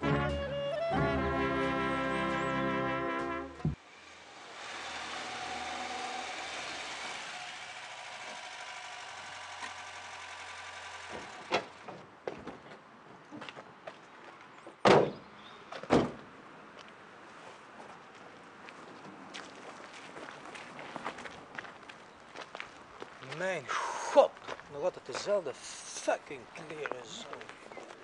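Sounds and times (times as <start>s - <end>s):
car engine running: 6.0s - 11.8s
car door thuds: 14.8s - 15.2s, 15.9s - 16.2s.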